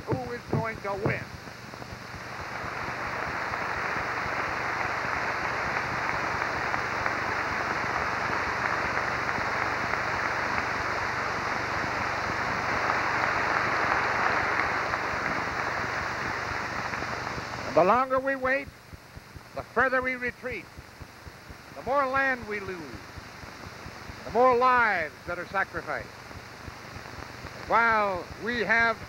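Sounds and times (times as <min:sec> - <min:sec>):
large audience applauding: 0:02.4 - 0:17.0.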